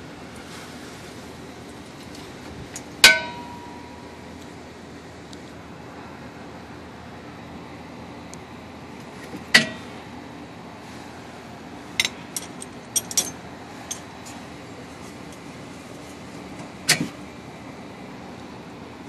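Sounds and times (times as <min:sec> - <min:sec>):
steady low hum: 0:00.0 - 0:19.0
wrench clinking on metal: 0:12.0 - 0:14.1.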